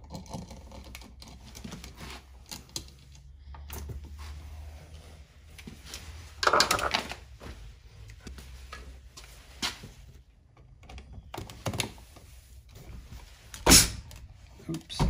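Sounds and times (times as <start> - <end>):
knocks and clatters of handling: 5.6 - 15.0.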